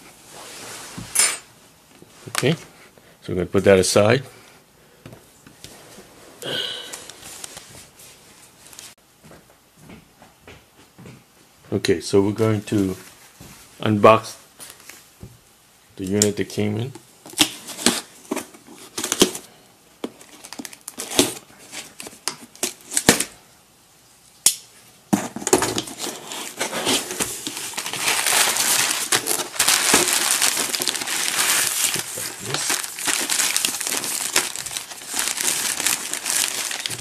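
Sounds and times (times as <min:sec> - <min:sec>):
plastic envelope crinkling: 0:17.2 - 0:23.4, 0:25.4 - 0:37.0
cardboard box opening: 0:25.3 - 0:37.0
packing tape peeling: 0:25.8 - 0:37.0.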